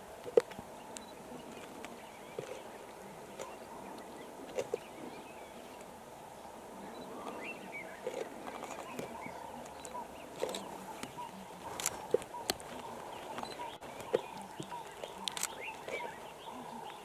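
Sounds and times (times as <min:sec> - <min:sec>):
small birds chirping: 0:00.0 - 0:17.0
lions chewing and tearing meat: 0:01.4 - 0:02.7, 0:08.0 - 0:16.2.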